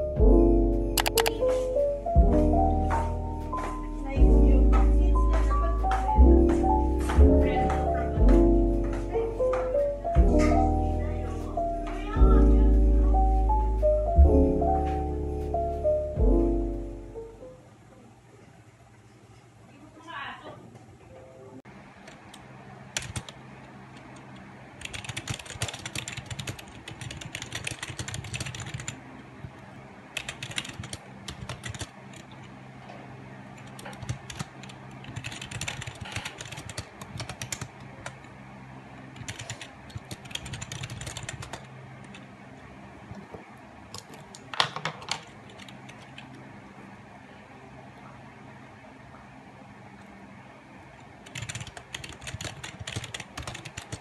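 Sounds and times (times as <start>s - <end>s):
steady low hum: 0.0s - 20.0s
keyboard key clicks: 1.0s - 1.4s.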